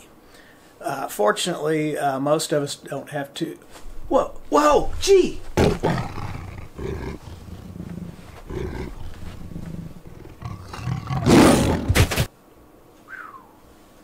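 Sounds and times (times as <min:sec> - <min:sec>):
tiger growling and roaring: 0:05.6 - 0:12.0.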